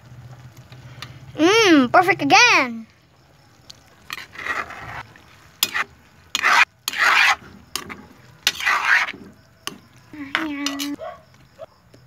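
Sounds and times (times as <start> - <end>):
spoon stirring in frying pan: 3.0 - 11.5
metal spoon clinking on pan: 9.7 - 11.0.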